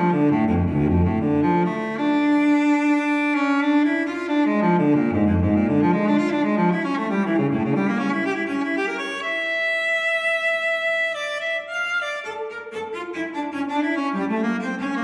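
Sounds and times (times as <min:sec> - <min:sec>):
solo cello music: 0:00.0 - 0:15.0.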